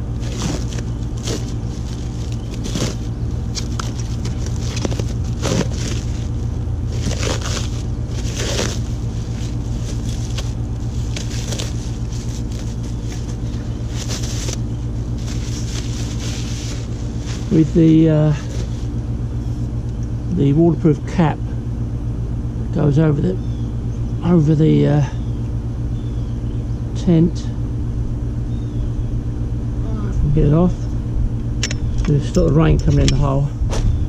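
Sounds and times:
steady low hum: 0.0 - 34.0
plastic wrapping crinkling: 0.2 - 17.6.

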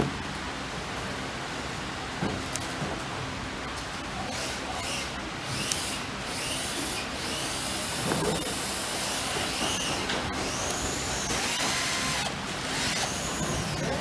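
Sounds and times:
electric screwdriver whining: 10.5 - 13.8.

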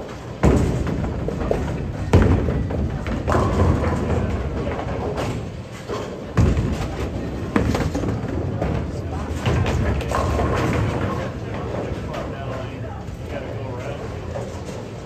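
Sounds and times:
bowling balls thudding on lanes: 0.0 - 15.0
bowling pins crashing: 0.3 - 12.3.

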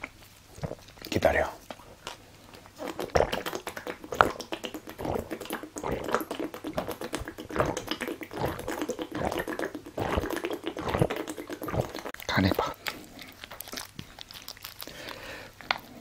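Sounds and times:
person gulping swallows: 0.6 - 1.1, 2.0 - 13.4
liquid glugging in bottle: 2.6 - 12.8.

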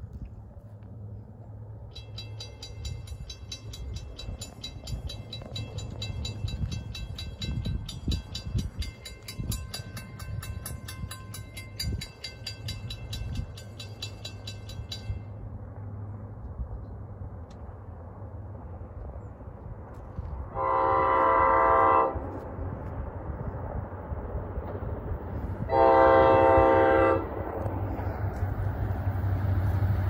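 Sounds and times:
steady low rumble: 0.0 - 30.0
crossing warning bell ringing: 1.8 - 15.4.

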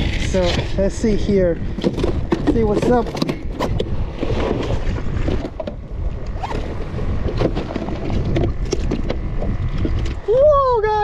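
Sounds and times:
wind noise on microphone: 0.0 - 11.0
water slapping boat hull: 1.8 - 10.3.

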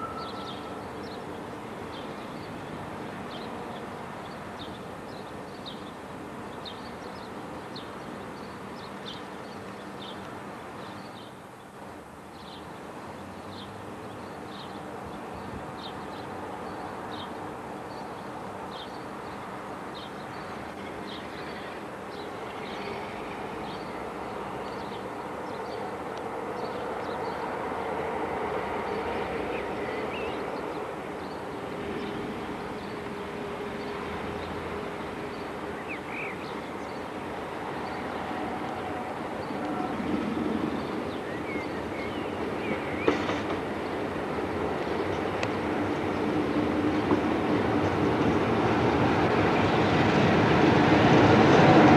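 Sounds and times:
bird chirping: 0.0 - 1.3
diesel locomotive engine drone: 0.0 - 4.2, 20.5 - 51.9.

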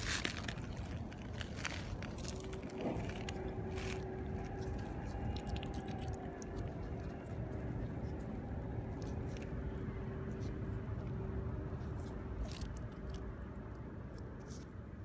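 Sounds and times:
pebbles clicking and crunching: 0.0 - 7.1
low rumble: 0.0 - 15.0.

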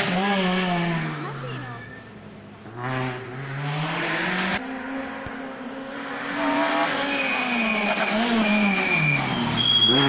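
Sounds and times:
rally car engine accelerating: 2.6 - 10.0.

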